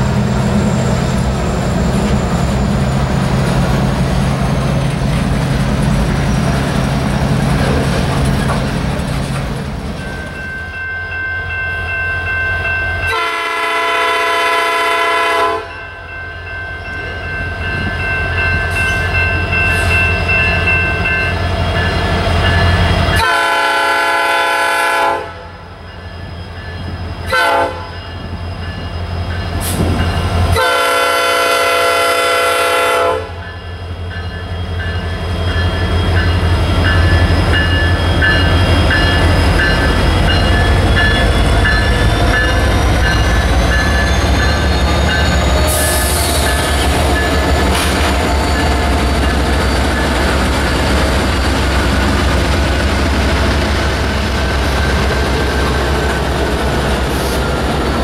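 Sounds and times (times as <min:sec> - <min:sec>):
diesel locomotive engines running: 0:00.0 - 0:58.0
train rumble: 0:00.0 - 0:58.0
bell ringing: 0:10.0 - 0:13.2, 0:15.7 - 0:23.2, 0:33.4 - 0:45.4
locomotive horn blasts: 0:13.1 - 0:15.8, 0:23.2 - 0:25.5, 0:27.3 - 0:28.0, 0:30.5 - 0:33.4.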